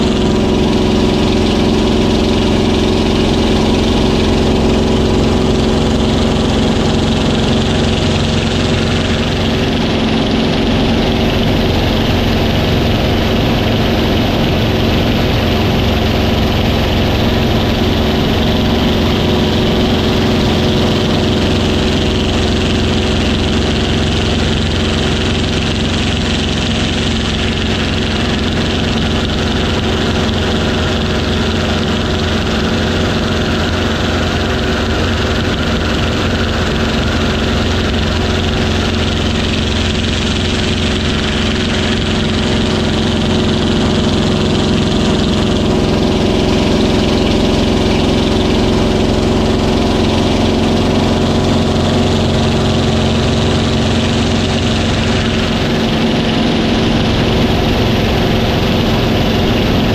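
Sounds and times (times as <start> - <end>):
piston engine drone: 0.0 - 59.9
rushing air noise: 7.6 - 25.2, 40.8 - 59.9.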